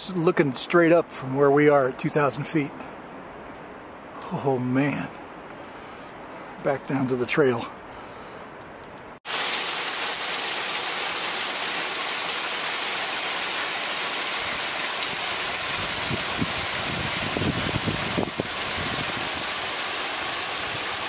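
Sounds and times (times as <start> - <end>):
stream water rushing and splashing: 9.2 - 21.0.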